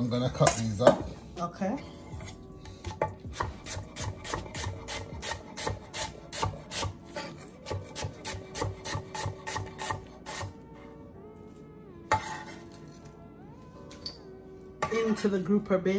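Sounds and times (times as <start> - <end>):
knife slicing onion: 2.2 - 10.6, 12.1 - 13.2.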